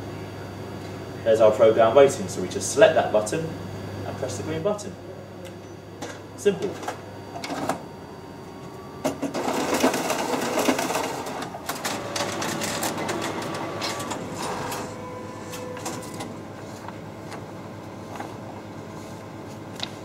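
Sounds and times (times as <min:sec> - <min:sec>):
copier feeding paper: 0:06.5 - 0:20.0
copier motor whirring: 0:06.6 - 0:20.0.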